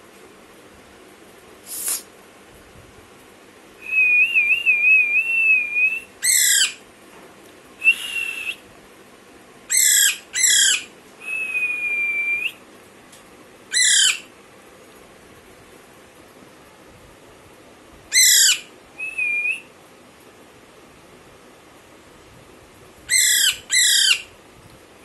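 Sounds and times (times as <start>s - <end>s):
parakeet whistling: 3.9s - 6.8s, 9.7s - 12.6s, 13.7s - 14.3s, 18.1s - 19.7s, 23.1s - 24.3s
parakeet squawking: 6.2s - 6.8s, 9.7s - 10.9s, 13.7s - 14.3s, 18.1s - 19.4s, 23.1s - 24.3s.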